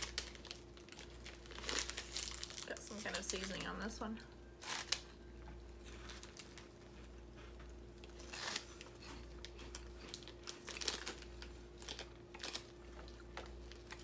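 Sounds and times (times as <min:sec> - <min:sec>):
faint steady hum: 0:00.0 - 0:14.0
plastic wrappers crinkling: 0:00.0 - 0:14.0
snack sticks crunched and chewed: 0:04.6 - 0:14.0.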